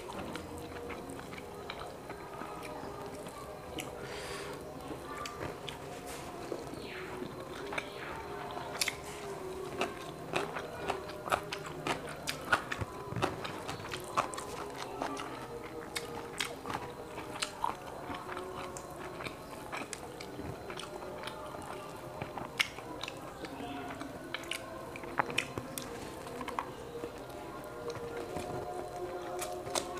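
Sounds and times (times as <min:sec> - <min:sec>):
person chewing and biting: 0:08.7 - 0:23.2.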